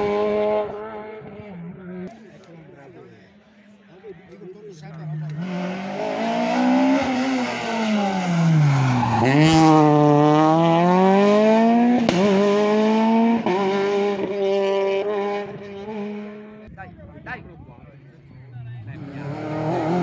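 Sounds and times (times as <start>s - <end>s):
rally car engine revving: 0.0s - 2.2s, 4.8s - 16.7s, 18.8s - 20.0s.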